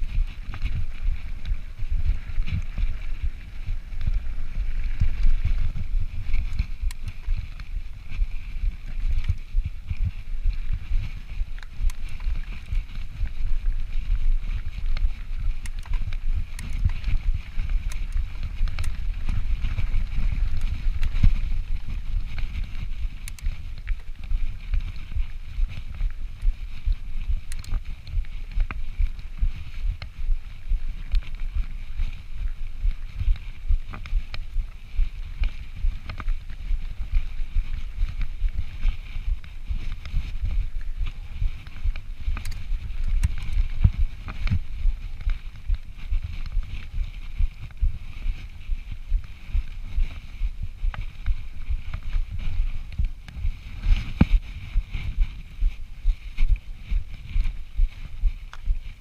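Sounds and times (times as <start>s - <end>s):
mountain bike rolling over rocks: 0.0s - 49.4s
wind rumbling on microphone: 0.0s - 59.0s
tyres clicking on gravel: 10.6s - 24.9s, 38.9s - 46.9s.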